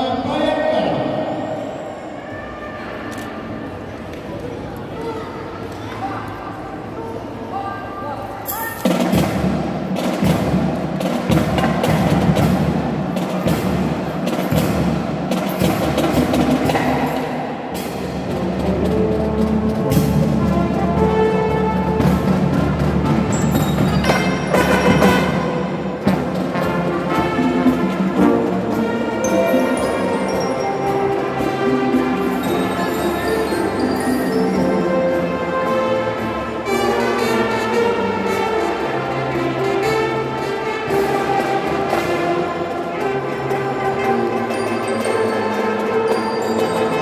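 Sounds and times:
marching drums playing: 0:08.8 - 0:33.0.

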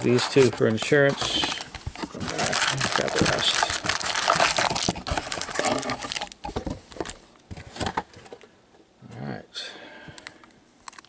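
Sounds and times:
wrapper crinkling and tearing: 0:00.0 - 0:06.4.

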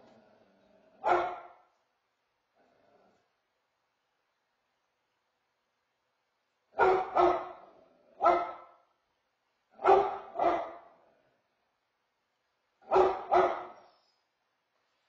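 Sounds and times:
dog barking: 0:01.0 - 0:01.7, 0:06.7 - 0:08.9, 0:09.8 - 0:11.0, 0:12.8 - 0:14.0.

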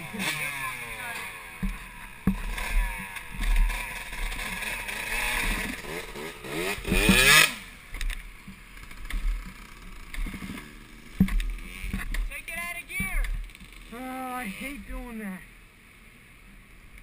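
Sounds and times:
motorcycle engine revving: 0:00.0 - 0:12.5.

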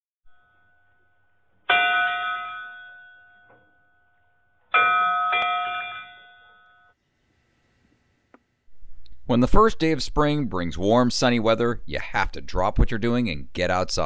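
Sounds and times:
bell-like chime strikes: 0:00.3 - 0:04.0, 0:04.8 - 0:06.9.

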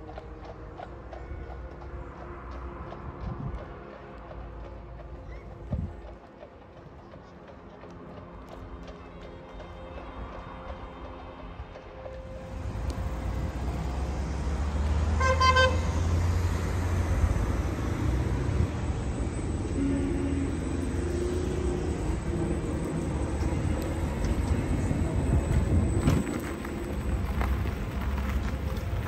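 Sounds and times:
street traffic rumbling: 0:00.0 - 0:29.0
car horn toot: 0:15.1 - 0:15.9, 0:19.7 - 0:20.6.

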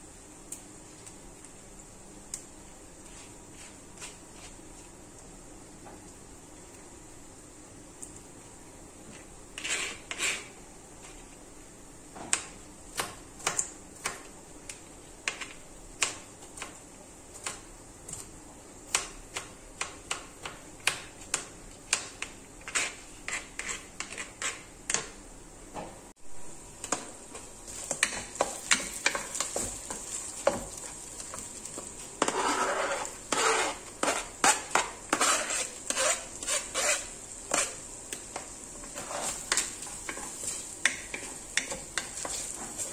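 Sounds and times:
knife scraping cutting board: 0:09.1 - 0:11.2, 0:22.6 - 0:24.7, 0:27.7 - 0:37.8, 0:38.8 - 0:42.9.

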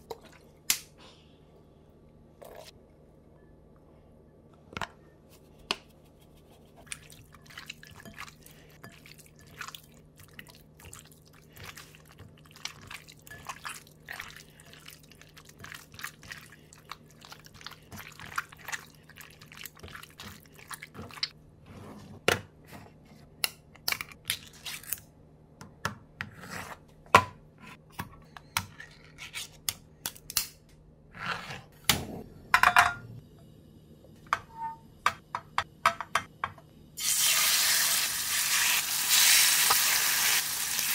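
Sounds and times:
hands kneading wet chicken: 0:05.8 - 0:21.3.

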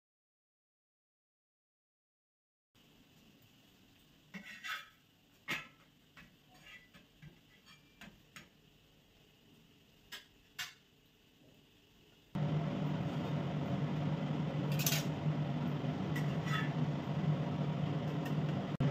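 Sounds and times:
loud motor-like hum: 0:12.4 - 0:18.9.

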